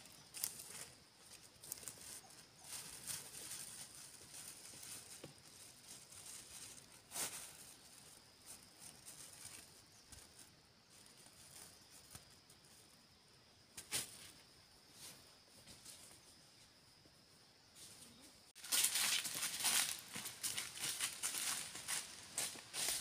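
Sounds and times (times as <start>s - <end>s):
footsteps through dry grass: 0.0s - 12.3s, 18.6s - 23.0s.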